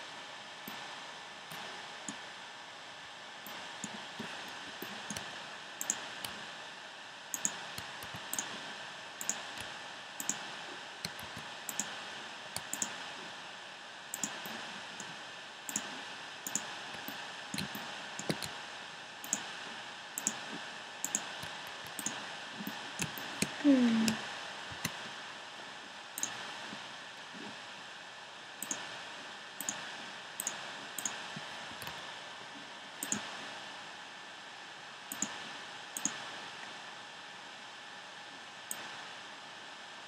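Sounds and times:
mouse and keyboard clicking: 4.8 - 6.4, 7.3 - 8.6, 9.2 - 10.4, 11.0 - 11.9, 12.6 - 13.0, 14.2 - 15.1, 15.7 - 15.9, 16.5 - 18.6, 19.2 - 19.4, 20.2 - 20.4, 21.0 - 23.6, 28.6 - 28.8, 30.4 - 31.2, 33.0 - 33.2, 35.1 - 35.4, 36.0 - 36.2.

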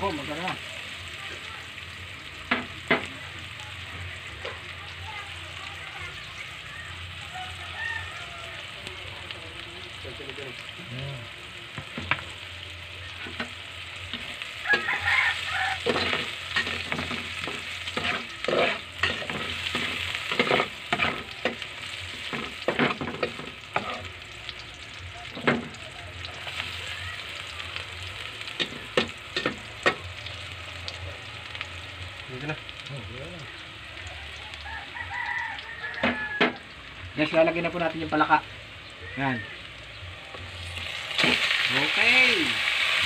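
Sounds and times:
onion sizzling in hot oil: 0.0 - 43.0
spatula scraping a pan: 13.2 - 24.1.

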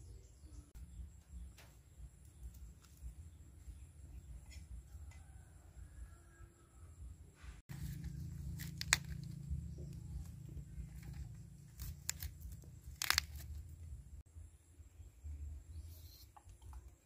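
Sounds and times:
knife cutting cauliflower: 7.7 - 9.5.

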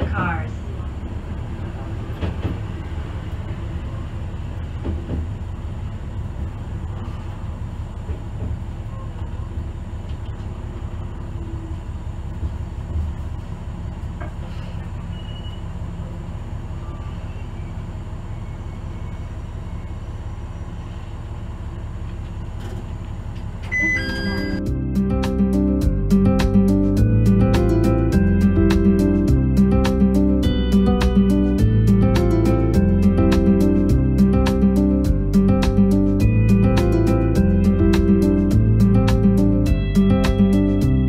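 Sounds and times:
train running on track: 0.0 - 24.6.

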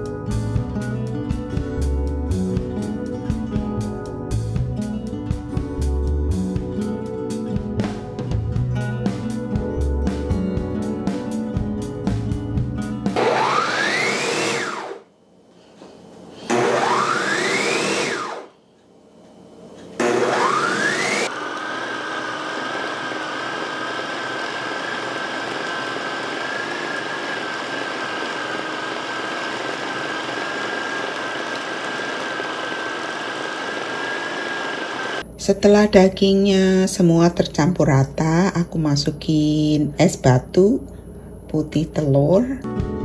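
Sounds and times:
blender motor whining: 13.1 - 15.1, 16.4 - 18.5, 20.0 - 35.2.

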